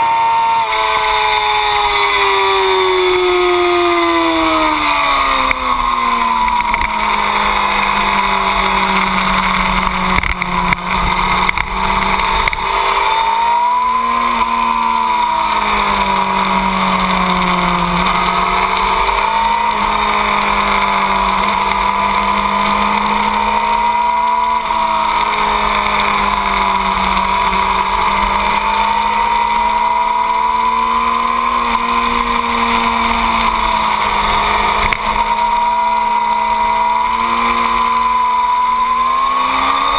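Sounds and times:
motorcycle engine at high revs: 0:00.0 - 0:39.9
wind on microphone: 0:01.9 - 0:23.4.

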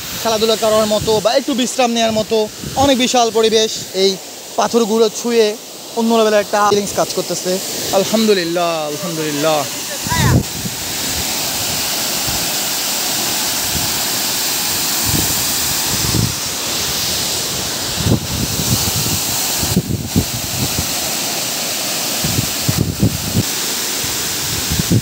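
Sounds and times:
waterfall rushing: 0:00.0 - 0:25.0
wind buffeting microphone: 0:09.8 - 0:12.5, 0:15.0 - 0:21.0, 0:22.2 - 0:23.5, 0:24.5 - 0:25.0.

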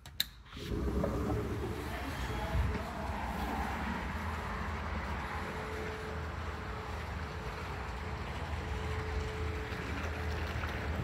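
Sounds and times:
wind buffeting microphone: 0:00.7 - 0:05.4.

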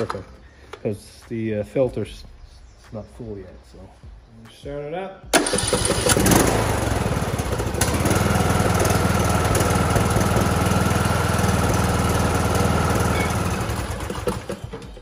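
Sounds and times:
lawn tractor engine running: 0:05.3 - 0:15.0.

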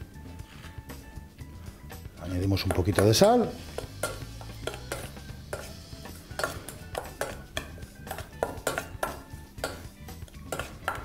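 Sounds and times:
metal spoon clinking in steel bowl: 0:03.8 - 0:09.8, 0:10.4 - 0:11.0.

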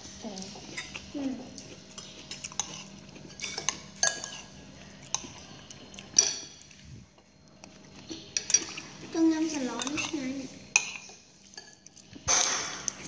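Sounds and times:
spoon clinking on ceramic plate: 0:03.4 - 0:04.5.

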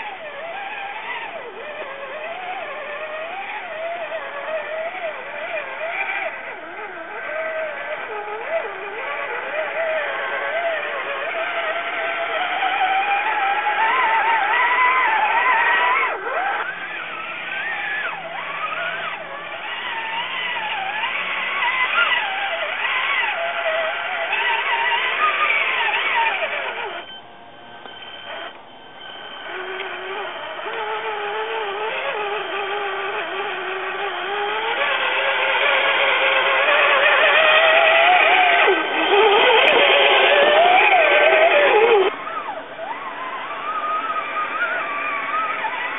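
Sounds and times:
electric motor and gear whine: 0:00.0 - 0:45.9.

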